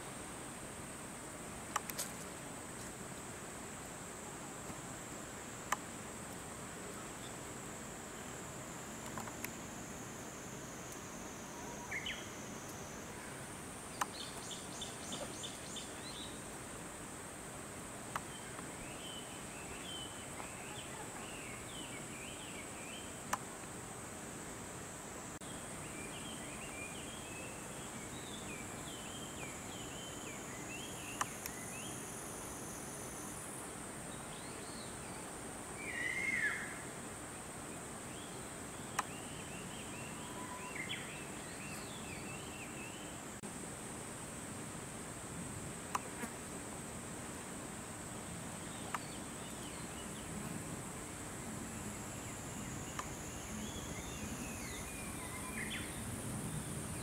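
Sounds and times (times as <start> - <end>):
insects droning: 0.0 - 57.0
small birds chirping: 51.0 - 57.0.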